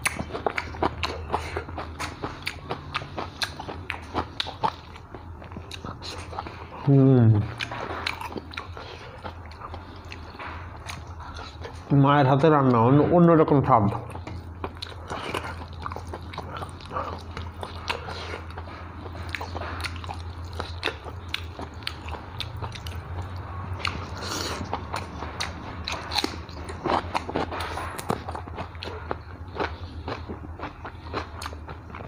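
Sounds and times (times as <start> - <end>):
person chewing food: 0.0 - 12.9, 13.7 - 32.0
steady low hum: 0.0 - 32.0.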